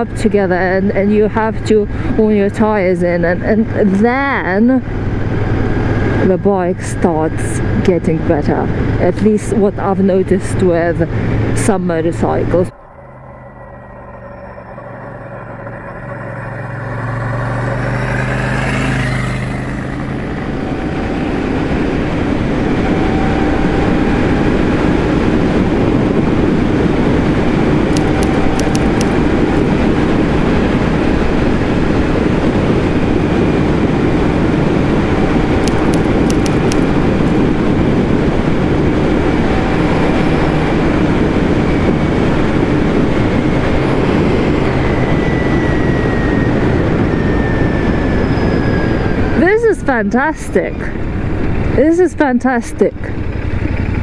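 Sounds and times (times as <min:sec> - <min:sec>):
wind and road noise: 0:00.0 - 0:54.0
motorcycle engine accelerating: 0:09.6 - 0:48.2, 0:50.9 - 0:54.0.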